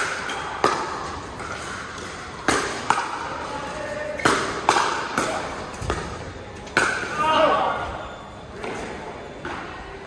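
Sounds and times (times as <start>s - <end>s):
paddles hitting plastic ball: 0.0s - 7.1s.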